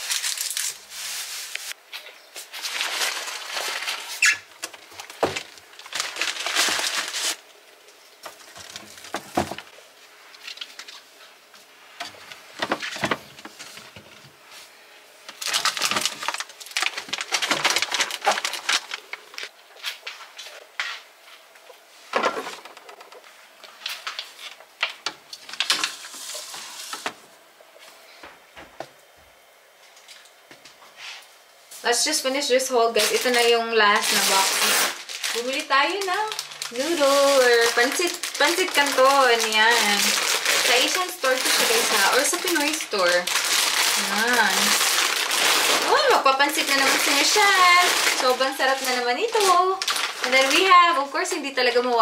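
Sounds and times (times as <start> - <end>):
plastic packaging rustling: 0.0 - 7.6, 8.2 - 9.7, 15.3 - 20.4, 22.1 - 27.1, 32.8 - 51.4
items knocking on shelves: 4.7 - 5.5, 8.3 - 9.7.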